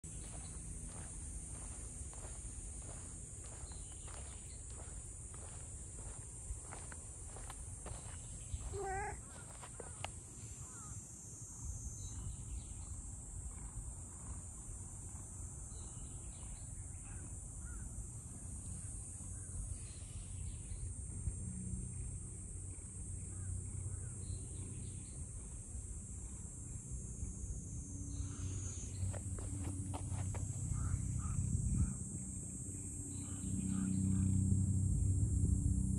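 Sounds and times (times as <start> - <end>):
high-pitched insect drone: 0.1 - 12.6, 26.6 - 35.9
faint bird calls: 0.2 - 11.0, 30.7 - 32.0.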